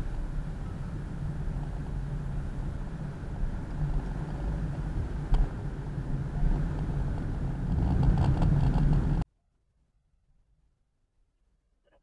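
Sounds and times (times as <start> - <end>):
car engine and tyres rumbling: 0.0 - 9.3.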